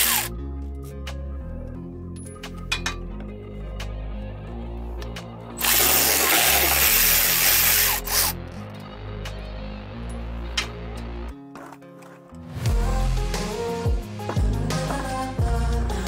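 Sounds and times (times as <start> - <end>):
electric power ratchet running: 0.0 - 0.3, 5.6 - 8.4
background music: 0.0 - 16.0.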